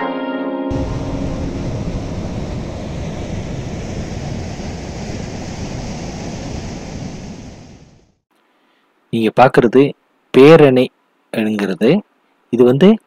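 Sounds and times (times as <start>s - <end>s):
water rushing over weir: 0.7s - 7.7s.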